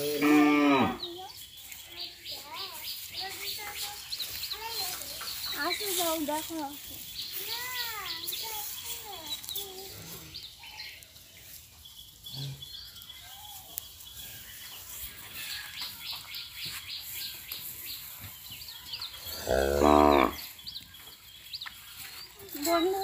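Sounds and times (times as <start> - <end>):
cow mooing: 0.0 - 1.0, 19.4 - 20.4.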